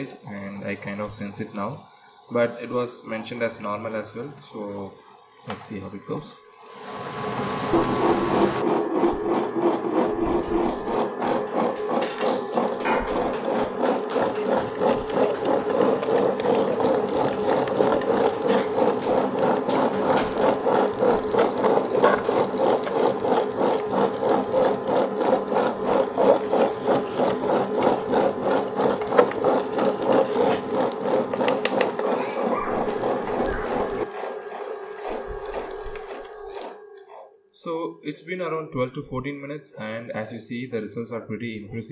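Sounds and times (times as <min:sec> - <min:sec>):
wet grinder pulsing rumble: 0:06.5 - 0:37.5.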